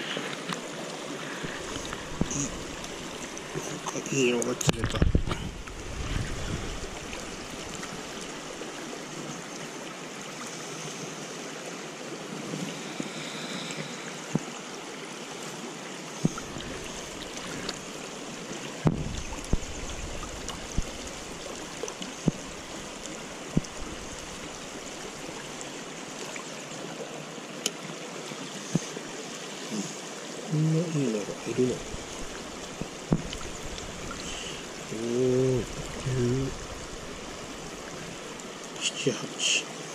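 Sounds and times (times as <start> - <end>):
river flowing over rocks: 0.0 - 39.9
knocks and splashes in water: 1.4 - 8.4, 18.6 - 25.3, 31.5 - 34.4.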